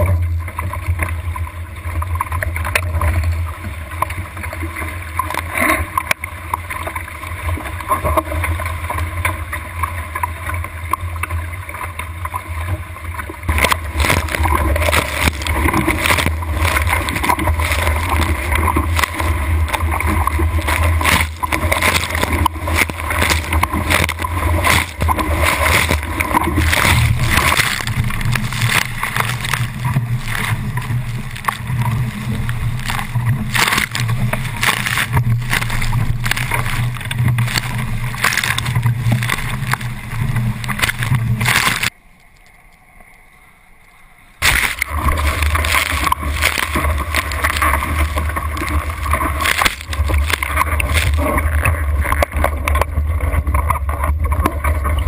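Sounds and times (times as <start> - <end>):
water rushing past hull: 0.0 - 42.0, 44.4 - 55.0
wind buffeting camera: 13.5 - 41.9.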